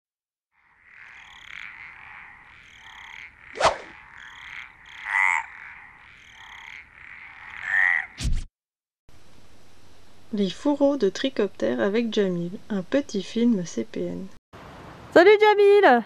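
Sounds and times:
frogs croaking: 0:00.5 - 0:08.2.

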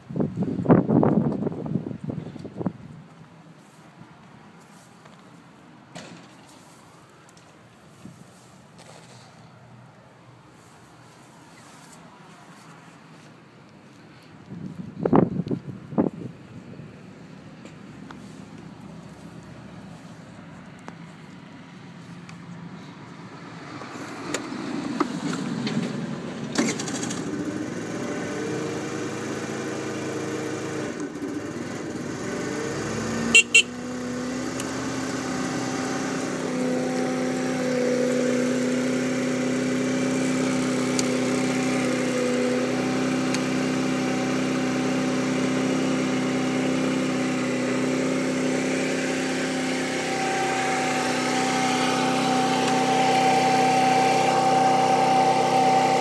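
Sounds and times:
scooter engine running: 0:23.9 - 0:56.0.

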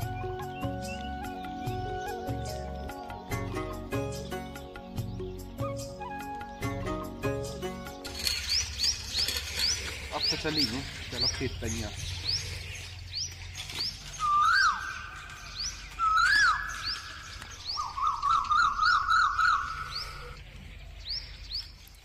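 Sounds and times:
whistled bird calls: 0:00.0 - 0:03.7, 0:04.8 - 0:07.2, 0:13.7 - 0:20.4
warbling bird trill: 0:05.4 - 0:12.4, 0:13.6 - 0:20.4
short high rising bird chirps: 0:11.9 - 0:20.4.

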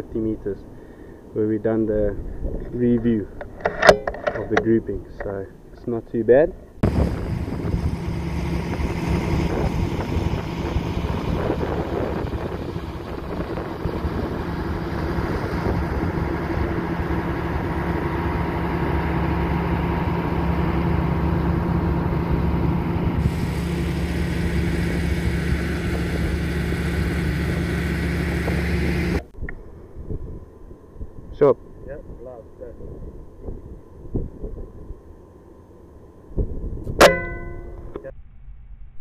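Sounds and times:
low mechanical drone: 0:00.0 - 0:39.0
hiss: 0:23.2 - 0:25.4.

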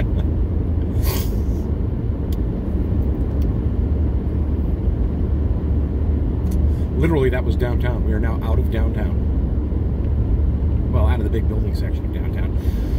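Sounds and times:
truck engine and road rumble: 0:00.0 - 0:12.9
brief hiss: 0:01.0 - 0:01.6.

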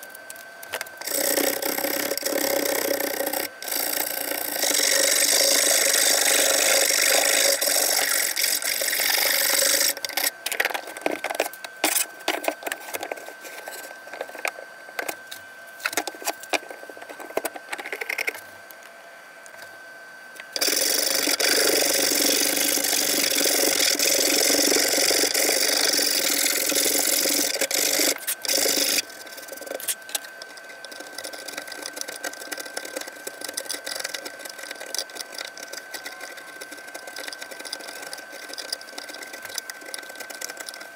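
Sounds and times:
file rasping wood: 0:01.0 - 0:10.3, 0:20.6 - 0:40.9
scraper scraping wood: 0:01.0 - 0:14.6, 0:20.6 - 0:40.9.

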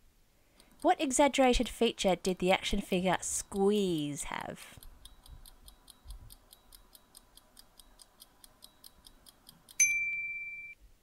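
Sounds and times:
rapid clock ticking: 0:00.6 - 0:09.8
loud ringing ding: 0:09.8 - 0:10.8.

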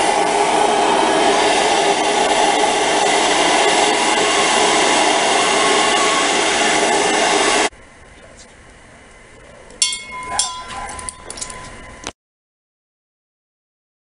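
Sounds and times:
gas torch hissing: 0:00.0 - 0:07.7.

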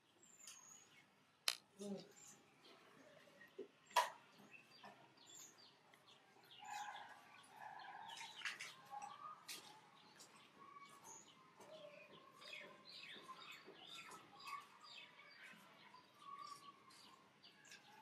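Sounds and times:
faint birds chirping: 0:00.0 - 0:18.0.

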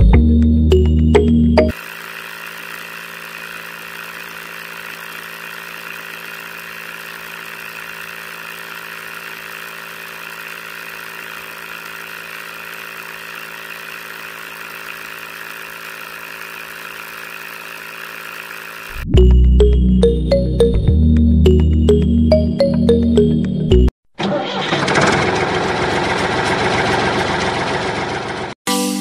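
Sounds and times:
small electric motor running: 0:01.7 - 0:19.1.

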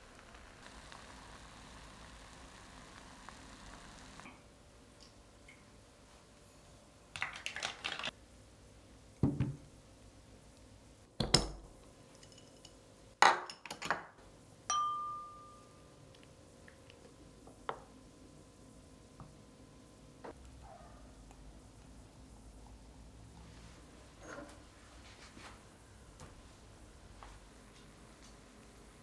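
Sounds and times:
ringing glass clink: 0:14.7 - 0:15.9.

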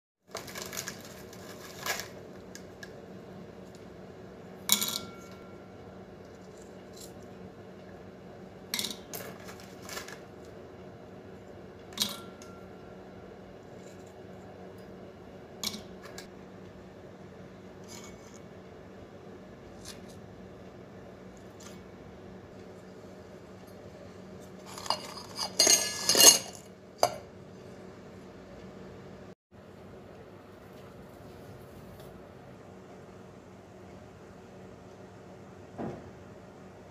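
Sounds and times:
steady low hum: 0:00.4 - 0:36.9
clinks in metal bowls: 0:24.7 - 0:27.2.

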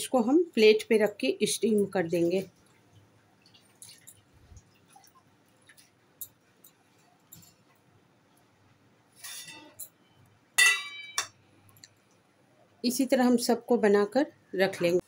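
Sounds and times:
metal kitchenware clinking: 0:09.2 - 0:10.0, 0:10.6 - 0:11.4.

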